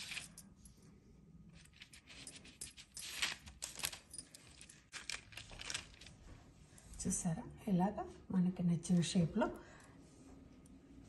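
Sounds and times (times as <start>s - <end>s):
paper crinkling: 3.0s - 6.2s.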